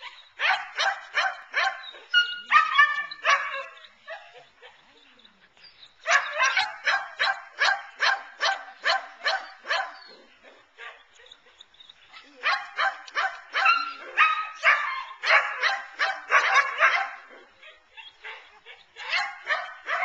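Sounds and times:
dog yelping: 0:00.0 - 0:04.4
dog barking: 0:00.4 - 0:04.3, 0:06.1 - 0:10.1, 0:12.4 - 0:20.0.

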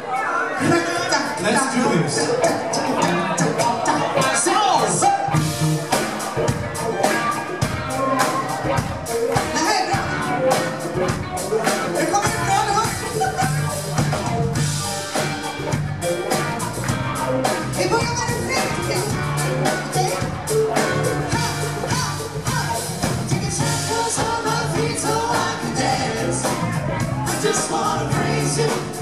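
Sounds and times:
live rock-pop band: 0:00.0 - 0:29.0
people singing into microphones: 0:21.4 - 0:29.0.

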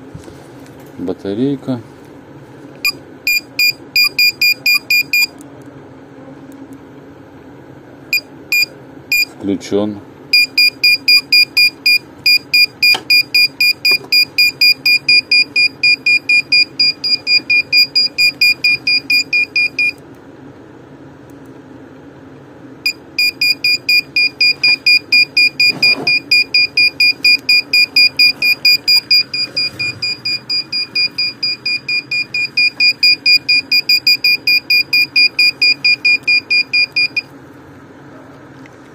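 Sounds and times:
pinpointer beeping: 0:02.8 - 0:05.3, 0:08.1 - 0:09.3, 0:10.3 - 0:20.0, 0:22.9 - 0:37.3.

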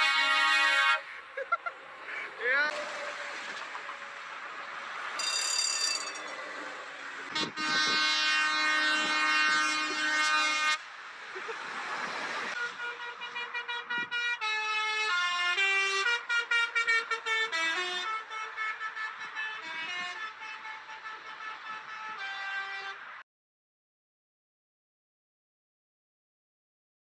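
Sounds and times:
air horn chord: 0:00.0 - 0:01.1, 0:07.3 - 0:10.8, 0:12.6 - 0:23.1
musical horn playing a tune: 0:00.0 - 0:01.1, 0:07.3 - 0:10.8, 0:12.6 - 0:23.2
short horn blast: 0:00.0 - 0:01.1, 0:07.3 - 0:10.8, 0:12.6 - 0:23.2
passing highway traffic: 0:00.0 - 0:23.2.

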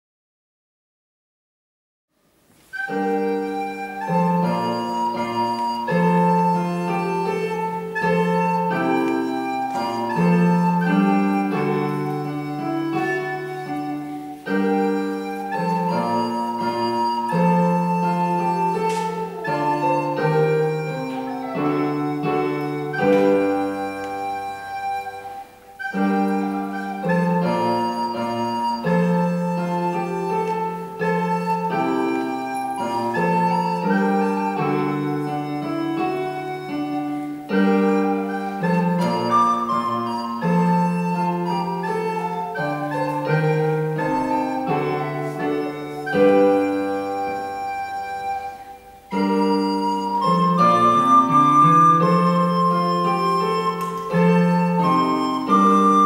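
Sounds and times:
piano accompaniment: 0:02.4 - 0:56.0
recorder melody: 0:02.4 - 0:56.0.

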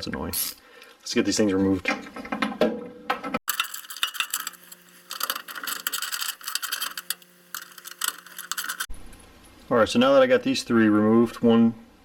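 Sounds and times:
ratchet clicking rapidly: 0:03.5 - 0:08.9.

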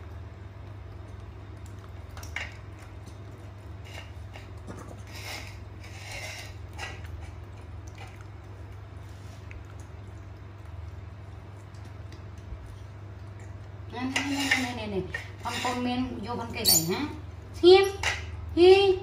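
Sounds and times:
animals chewing wetly: 0:00.0 - 0:15.4
steady low hum: 0:00.0 - 0:19.0
clicks and scrapes on plates: 0:03.8 - 0:08.2, 0:14.0 - 0:15.9.

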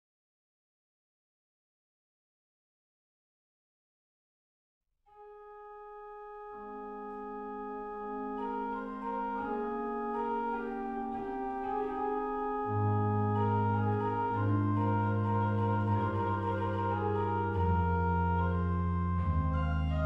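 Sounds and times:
organ chords: 0:05.4 - 0:20.0
low organ bass line: 0:06.4 - 0:20.0.

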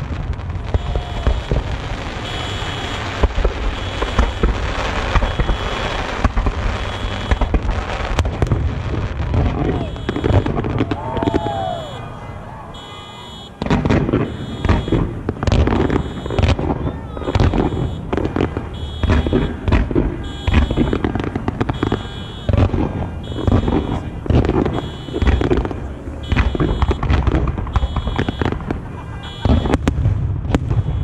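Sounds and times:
fireworks booming bangs: 0:00.0 - 0:31.0
electronic alarm beeping: 0:06.8 - 0:07.5, 0:09.9 - 0:10.5, 0:12.8 - 0:13.6, 0:14.2 - 0:15.0, 0:15.8 - 0:16.5, 0:17.2 - 0:18.1, 0:18.8 - 0:19.6, 0:20.2 - 0:21.0, 0:21.8 - 0:22.6, 0:23.2 - 0:24.0, 0:24.7 - 0:25.5, 0:26.2 - 0:27.1, 0:27.7 - 0:28.5.

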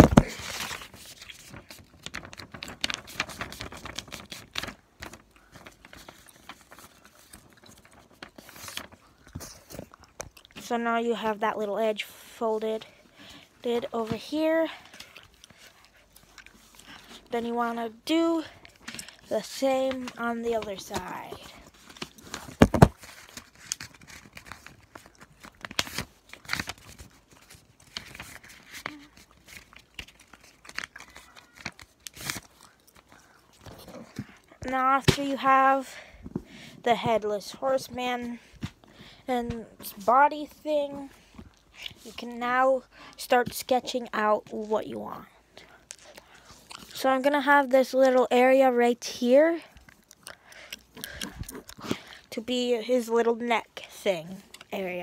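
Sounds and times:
paper being folded and creased: 0:00.0 - 0:10.4, 0:13.6 - 0:36.4.

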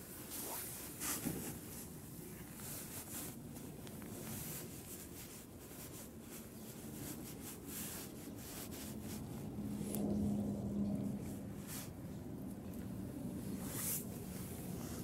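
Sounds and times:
low steady hum: 0:00.0 - 0:15.0
hand stroking cat fur: 0:00.2 - 0:10.0, 0:13.5 - 0:15.0.

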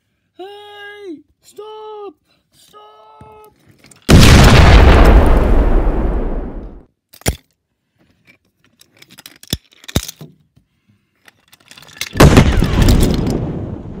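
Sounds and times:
explosion with deep rumble: 0:04.1 - 0:06.8, 0:12.2 - 0:14.0.

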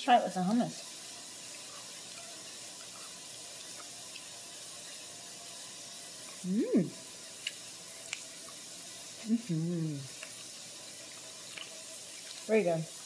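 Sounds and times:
person humming mmm: 0:06.4 - 0:07.0, 0:09.2 - 0:10.2.

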